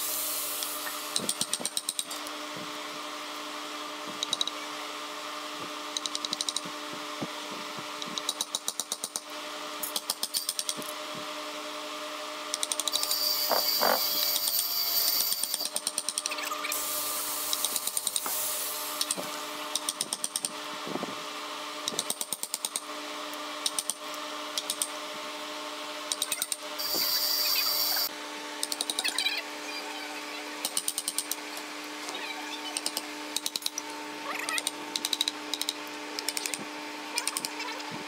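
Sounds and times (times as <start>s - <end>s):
high-pitched machine whine: 12.8s - 19.7s, 26.3s - 28.2s
steady hum: 26.7s - 28.2s.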